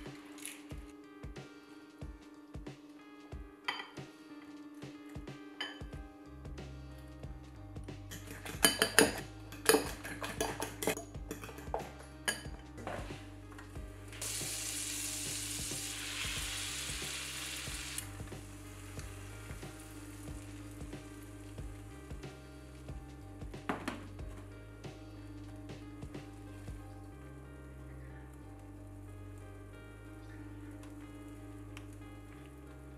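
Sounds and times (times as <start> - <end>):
soft background music: 0.0 - 32.9
utensil clinking glass bowl: 8.1 - 12.6
butter sizzling in frying pan: 14.2 - 22.2.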